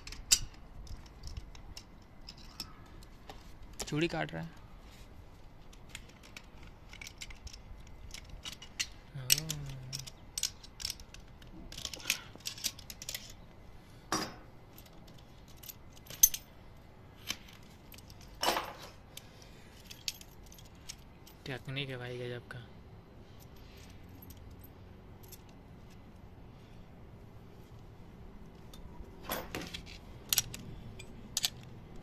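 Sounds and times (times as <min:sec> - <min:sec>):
metal clicks and clinks: 0:00.0 - 0:03.0, 0:05.7 - 0:13.4, 0:14.2 - 0:16.5, 0:28.6 - 0:31.8.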